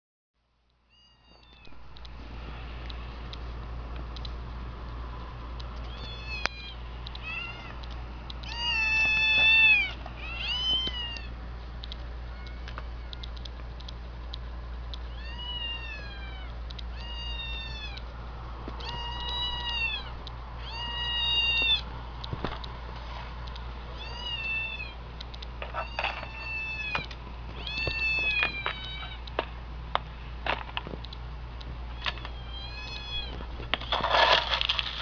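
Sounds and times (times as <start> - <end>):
low hum: 0.4 - 35.0
kittens meowing through speaker: 5.9 - 7.8, 18.8 - 21.9, 25.8 - 29.2.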